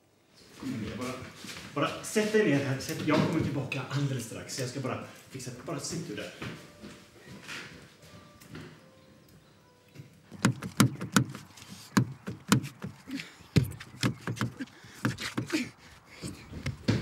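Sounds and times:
sharp knocks and thumps: 10.3s - 17.0s.

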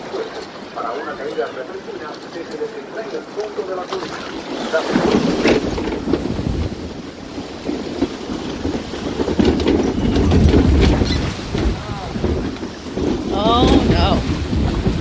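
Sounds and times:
water rushing and splashing: 0.0s - 15.0s
wind buffeting microphone: 4.7s - 15.0s.

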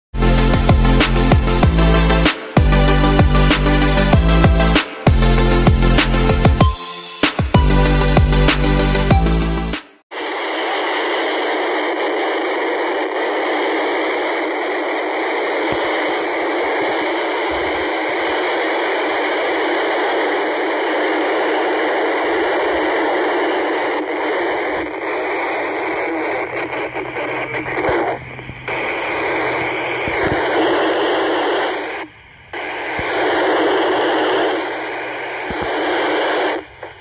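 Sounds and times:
radio static hiss: 10.1s - 37.0s.

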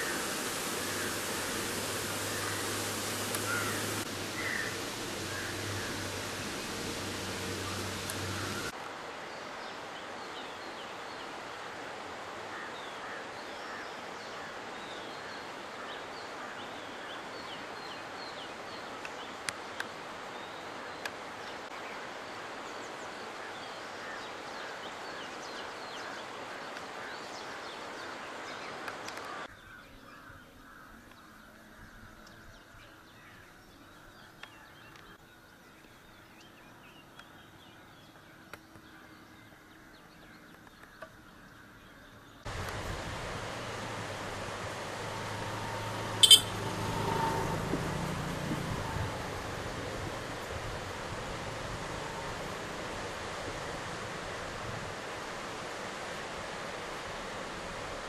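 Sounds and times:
stream running over rocks: 0.0s - 29.5s, 42.4s - 58.0s
bird chirps: 45.9s - 47.2s.

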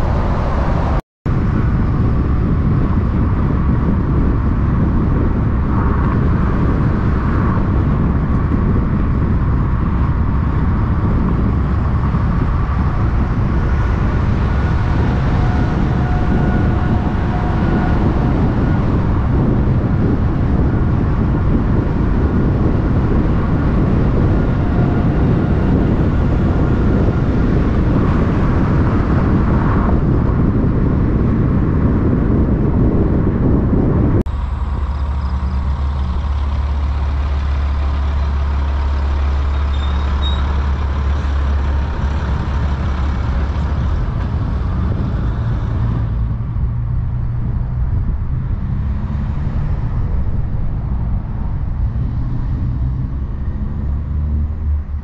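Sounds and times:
truck diesel engines running: 0.0s - 55.0s.

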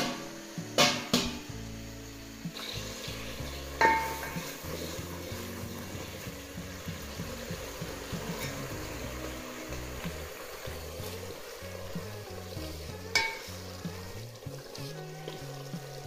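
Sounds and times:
metal clank: 0.0s - 1.5s, 3.8s - 4.7s, 13.1s - 13.6s
sauce sizzling in a pot: 0.0s - 16.0s
wooden spoon stirring: 2.6s - 16.0s.

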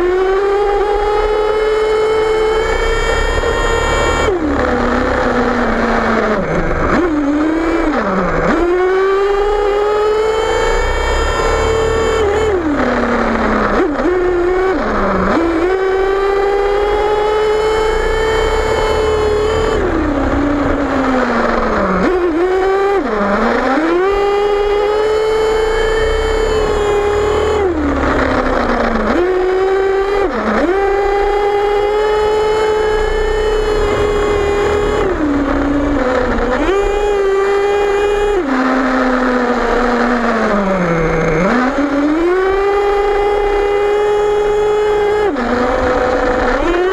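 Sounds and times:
small nitro engine revving: 0.0s - 46.9s.

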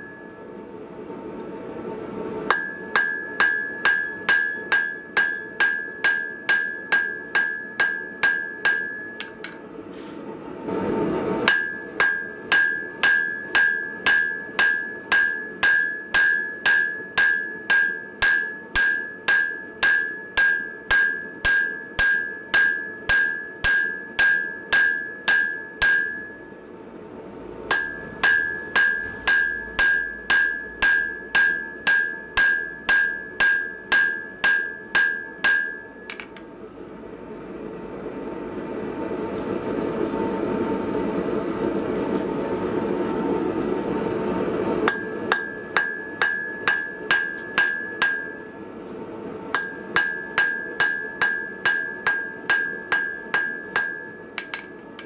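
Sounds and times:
hammer striking steel on anvil: 2.4s - 9.7s, 11.4s - 26.6s, 27.6s - 36.5s, 44.8s - 48.7s, 49.5s - 55.0s.

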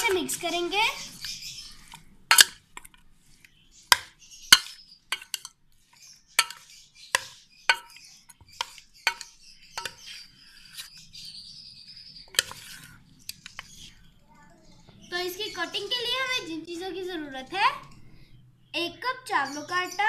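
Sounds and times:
soft stirring noise: 0.0s - 11.5s, 12.2s - 14.8s
spoon clinking against steel bowl: 6.4s - 10.1s.

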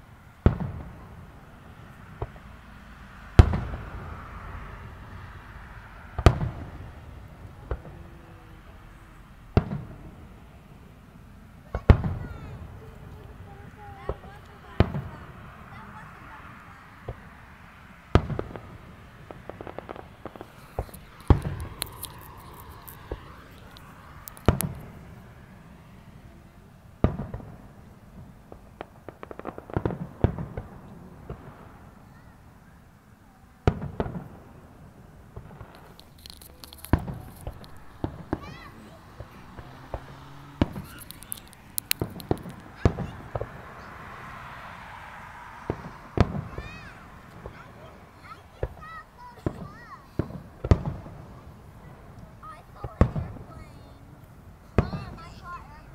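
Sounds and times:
firework pops and crackles: 0.4s - 2.6s, 3.4s - 4.4s, 6.0s - 10.6s, 11.6s - 16.1s, 18.1s - 26.0s, 27.0s - 32.8s, 33.6s - 55.9s
firework shells bursting: 18.1s - 25.4s, 35.2s - 43.9s, 45.1s - 47.7s.

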